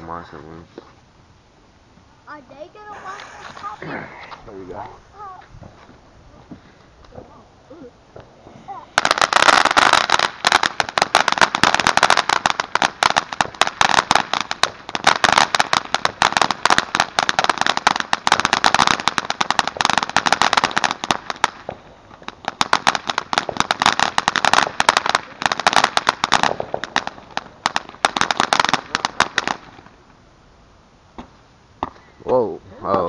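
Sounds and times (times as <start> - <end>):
firework cracks and pops: 2.8 - 7.4, 8.1 - 30.0.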